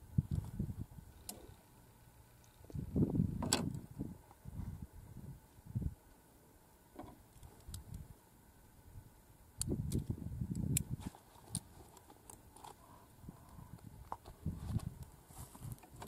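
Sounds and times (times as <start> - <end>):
wind gust on microphone: 2.7 - 6.0.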